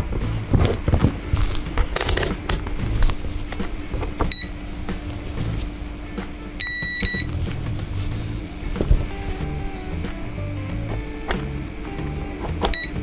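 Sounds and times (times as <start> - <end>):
multimeter continuity beep: 4.3 - 4.6, 6.6 - 7.3, 12.7 - 13.0.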